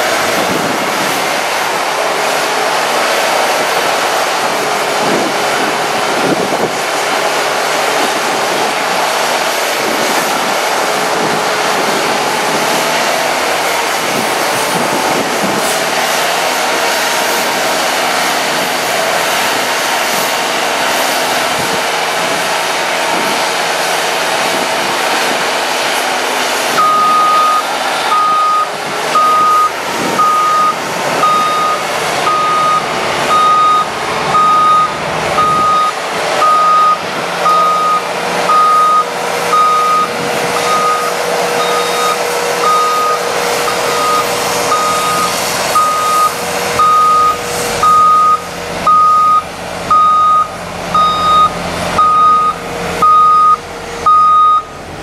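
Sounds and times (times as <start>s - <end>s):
truck engine running: 0.0s - 55.0s
truck backup alarm beeping: 26.7s - 54.8s.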